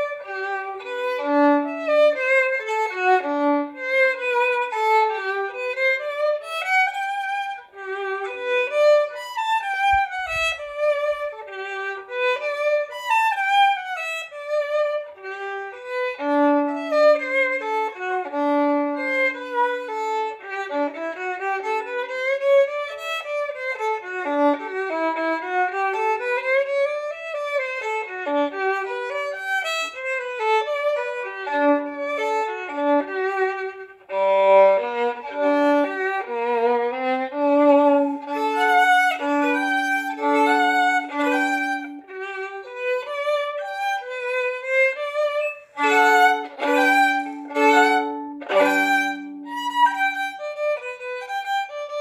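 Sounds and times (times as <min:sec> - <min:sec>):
solo violin melody: 0:00.0 - 0:52.0.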